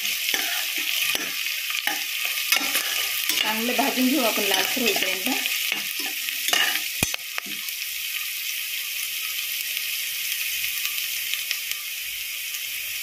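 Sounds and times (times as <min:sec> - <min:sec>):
spoon scraping metal pot: 0:00.0 - 0:07.2
food sizzling in hot oil: 0:00.0 - 0:13.0.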